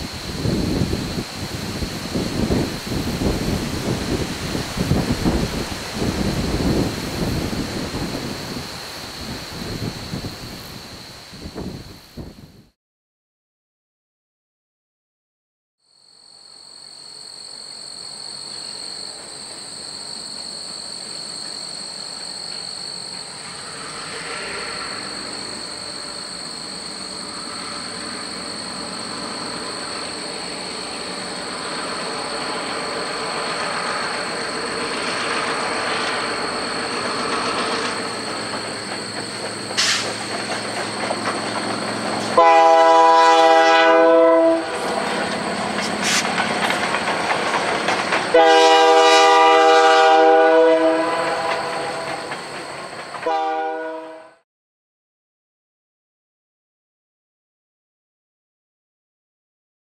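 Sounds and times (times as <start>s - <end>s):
diesel locomotive engines: 0.0s - 12.4s, 17.8s - 54.4s
locomotive air horn blast: 42.3s - 45.0s, 48.3s - 52.2s, 53.2s - 54.4s.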